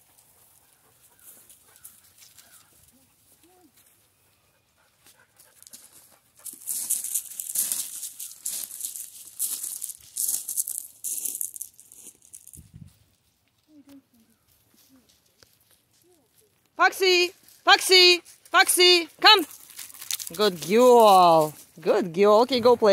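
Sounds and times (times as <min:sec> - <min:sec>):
footsteps crunching on gravel: 0:05.5 - 0:13.6, 0:19.5 - 0:21.9.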